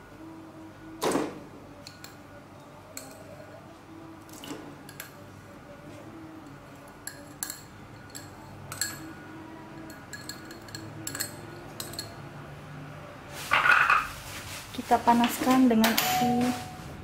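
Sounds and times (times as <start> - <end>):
kitchenware clinking on saucepan: 7.0 - 9.1, 9.8 - 12.2.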